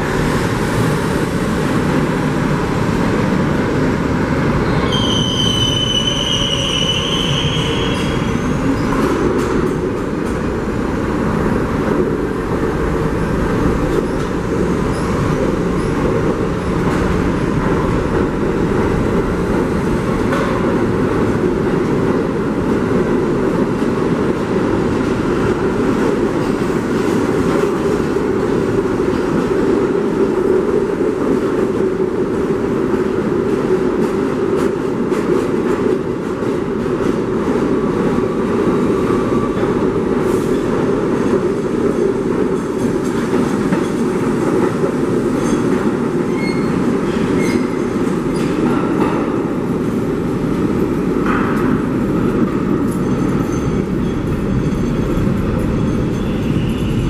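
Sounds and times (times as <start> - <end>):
train wheels rumbling on rail: 0.0 - 57.0
high-pitched wheel squeal: 4.6 - 8.9.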